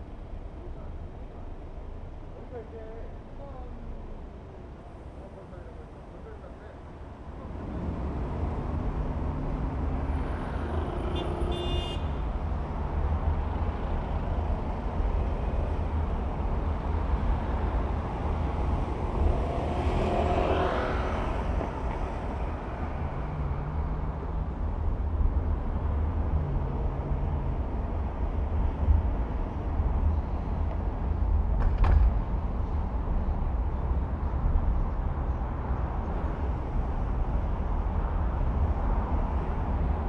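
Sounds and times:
car road and engine rumble: 0.0s - 40.0s
vehicle passing: 17.1s - 24.4s.

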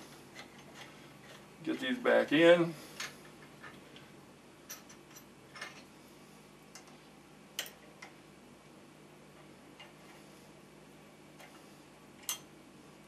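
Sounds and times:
steel parts clicking and tapping: 7.6s - 8.2s, 12.2s - 12.5s.

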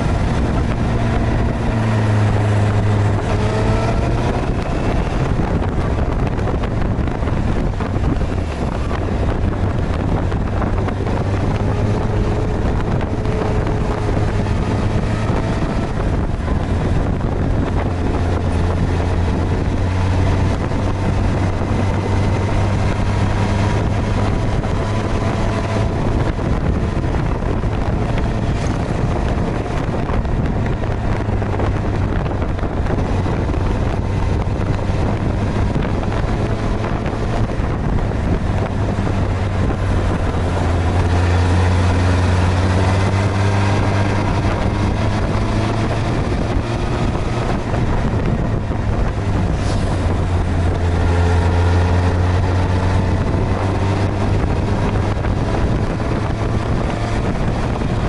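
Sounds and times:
motorcycle engine running: 0.0s - 58.0s
wind rushing over microphone: 0.0s - 58.0s.

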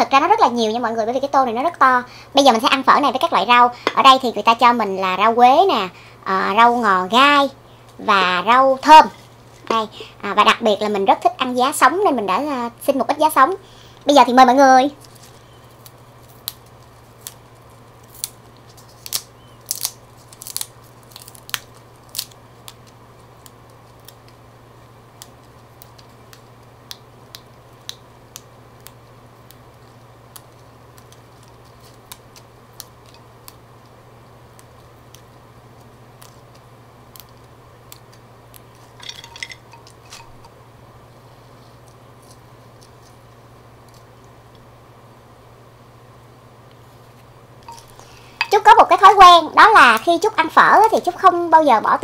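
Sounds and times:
low steady hum: 0.0s - 52.0s
leaves rustling: 14.9s - 24.3s, 46.8s - 51.6s
herb stems snapping: 15.0s - 24.4s, 25.1s - 33.9s, 34.5s - 40.4s.

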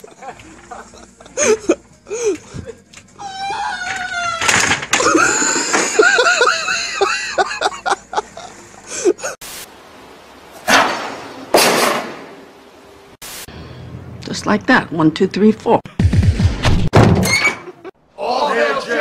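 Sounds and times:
people shrieking and laughing: 0.0s - 9.4s.

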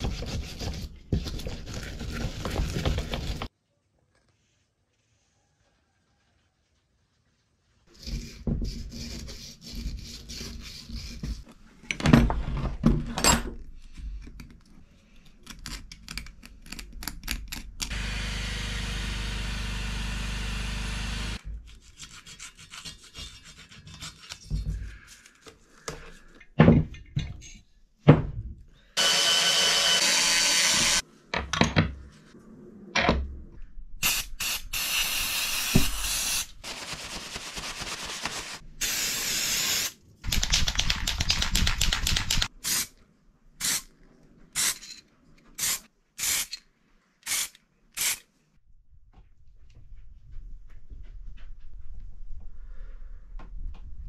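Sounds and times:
power drill on metal: 17.9s - 21.4s, 29.0s - 31.0s.

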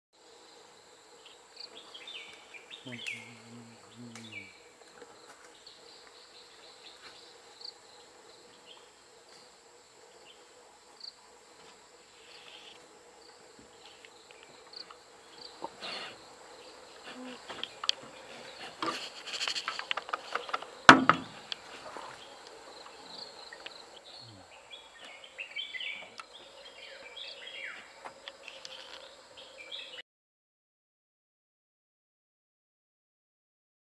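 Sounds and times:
forest insects droning: 0.2s - 30.0s
clicks and crackles: 18.8s - 21.6s, 28.2s - 29.1s
sharp loud knock: 20.9s - 21.4s.

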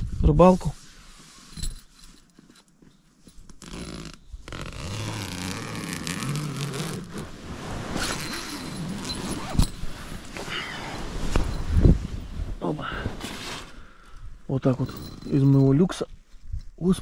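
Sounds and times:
nylon fabric rustling: 0.5s - 15.7s
zipper being pulled: 3.5s - 12.2s.

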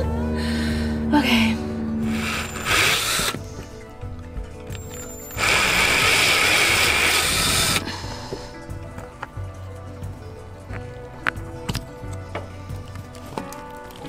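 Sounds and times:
cordless drill motor whining: 1.9s - 7.9s.

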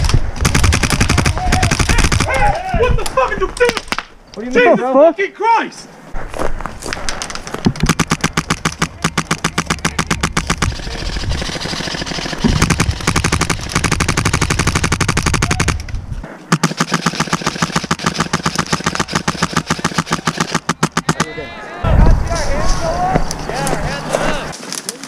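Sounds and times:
airsoft gun firing rapidly: 0.4s - 2.5s, 7.8s - 15.8s, 16.5s - 21.3s.

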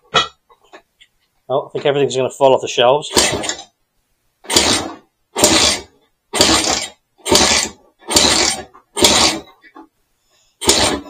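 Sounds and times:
motorcycle kickstart clatter: 10.6s - 11.0s.

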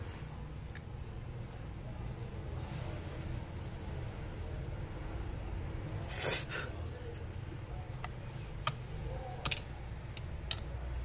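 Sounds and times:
light plastic clicks and taps: 8.0s - 10.8s.

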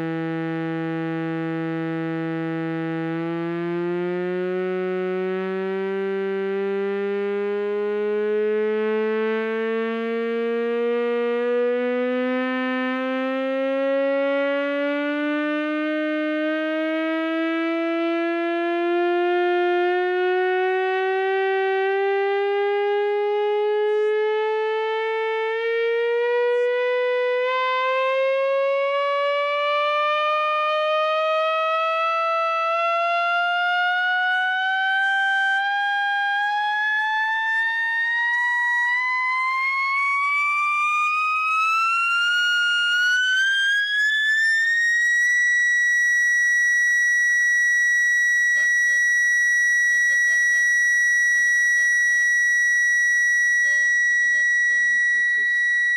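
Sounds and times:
rising sine sweep tone: 0.0s - 55.9s.

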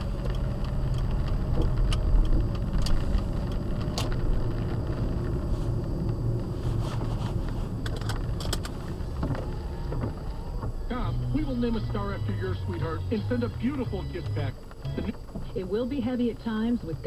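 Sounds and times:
rain ticking on windshield: 0.0s - 6.6s
tyres on wet road: 0.0s - 16.4s
car engine rumble: 0.0s - 17.0s.

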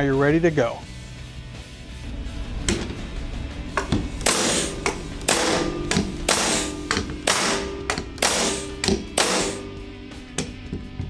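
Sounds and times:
pneumatic stapler firing: 4.2s - 9.8s.

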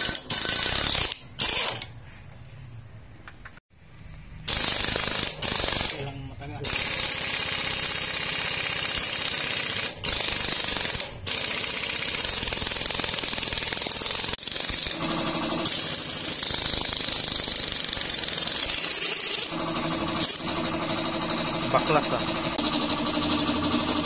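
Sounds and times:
impact wrench hammering: 6.6s - 23.9s.

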